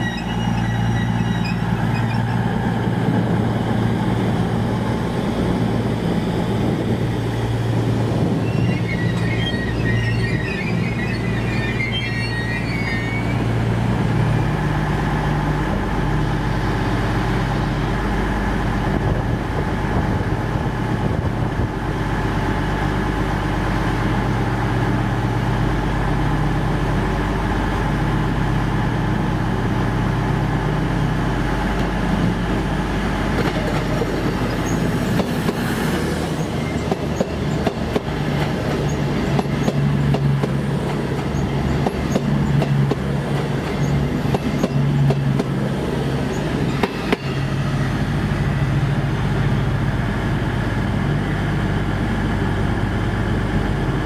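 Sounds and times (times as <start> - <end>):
passenger train running: 0.0 - 54.0
irregular knocking of train wheels: 33.2 - 47.7.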